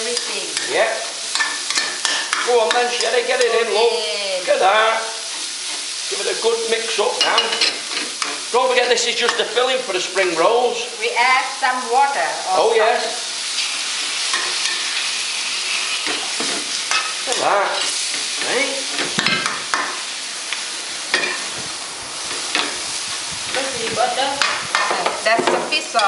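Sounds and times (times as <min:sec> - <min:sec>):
metal spatula scraping a wok: 0:00.0 - 0:03.8, 0:04.5 - 0:08.6, 0:13.1 - 0:20.0
filling sizzling in a wok: 0:00.0 - 0:26.0.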